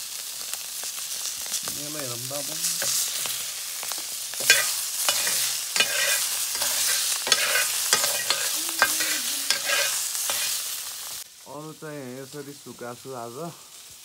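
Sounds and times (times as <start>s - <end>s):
meat sizzling in hot oil: 0.0s - 14.0s
metal ladle scraping a wok: 4.4s - 10.8s.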